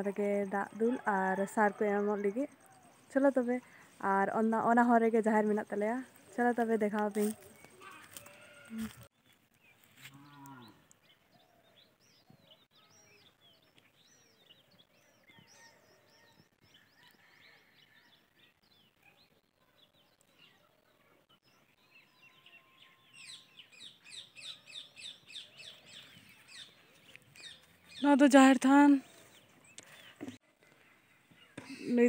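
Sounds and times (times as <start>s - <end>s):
birds chirping and whistling: 21.5s - 28.2s.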